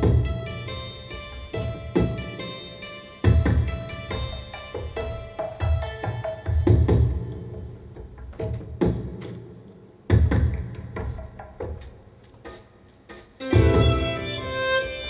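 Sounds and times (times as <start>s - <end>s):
drum strikes: 0.0s - 15.0s
violin sustained notes: 13.4s - 15.0s.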